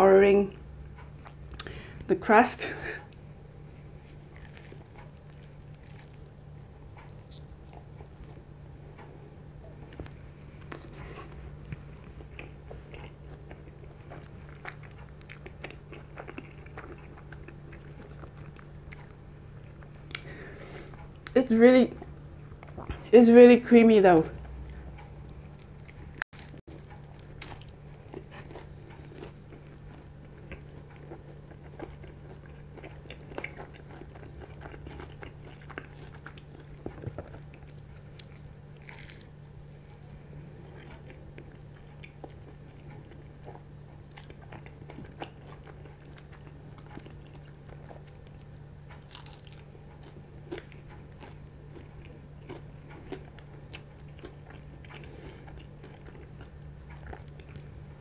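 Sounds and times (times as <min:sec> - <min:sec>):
person chewing pizza: 0:00.2 - 0:23.2, 0:24.3 - 0:58.0
small crunches: 0:04.0 - 0:08.4, 0:24.4 - 0:58.0.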